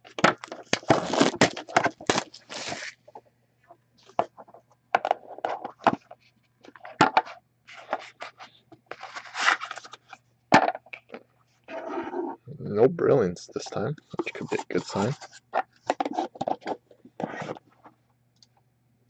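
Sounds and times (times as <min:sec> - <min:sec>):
plastic wrap tearing and crinkling: 0:00.4 - 0:03.0.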